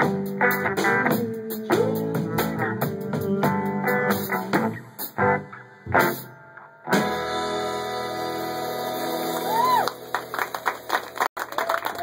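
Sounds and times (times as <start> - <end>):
swing band playing: 0.0 - 11.2
person whooping: 9.3 - 10.0
audience clapping: 9.4 - 12.0.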